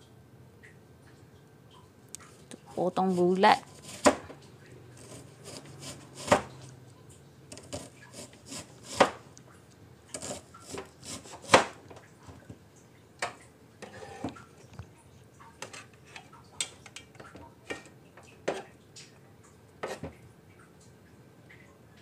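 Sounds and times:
knife slicing onion on cutting board: 3.0 - 4.3, 5.0 - 6.7, 7.5 - 9.3, 10.1 - 11.8, 19.8 - 20.1.

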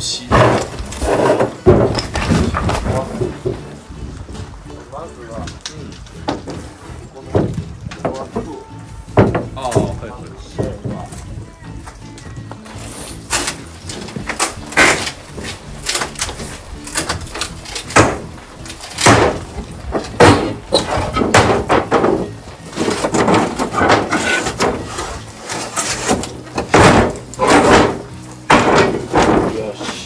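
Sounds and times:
wood cracking: 0.0 - 30.0
crowbar knocking wood boards: 0.3 - 3.7, 9.2 - 10.0, 13.4 - 30.0.

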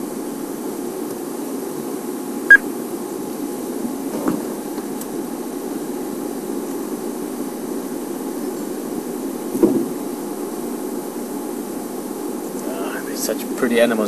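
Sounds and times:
vehicle engine idling: 3.1 - 14.0.

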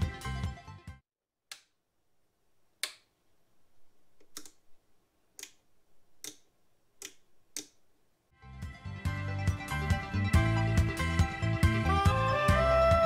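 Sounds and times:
turntable switch clicks: 6.2 - 7.8.

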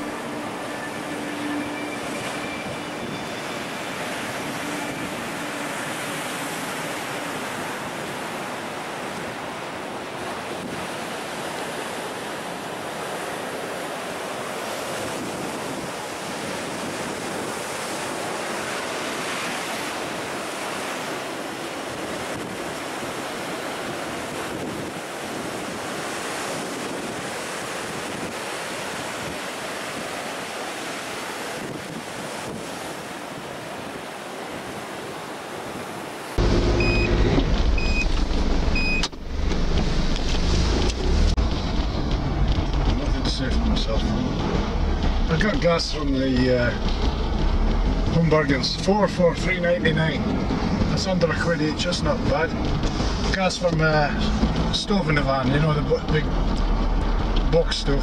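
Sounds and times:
waves breaking against a sea wall: 2.0 - 58.0
wind buffeting microphone: 2.0 - 58.0.

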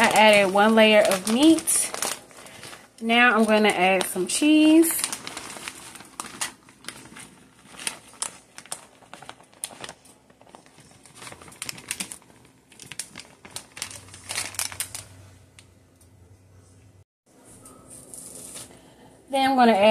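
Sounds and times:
plastic bag crinkling: 0.0 - 15.4.

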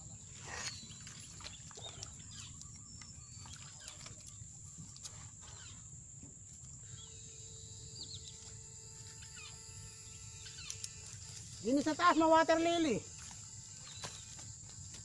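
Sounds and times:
bird chirps: 0.3 - 5.9.

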